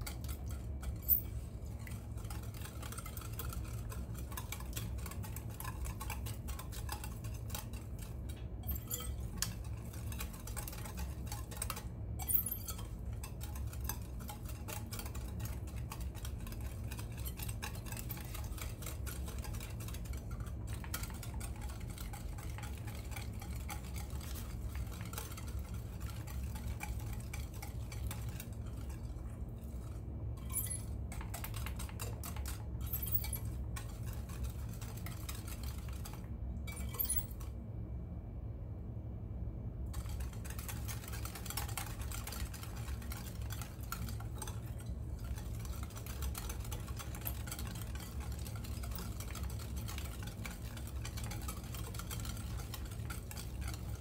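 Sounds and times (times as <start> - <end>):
whisk clinking against glass bowl: 0.0 - 37.5, 39.9 - 54.0.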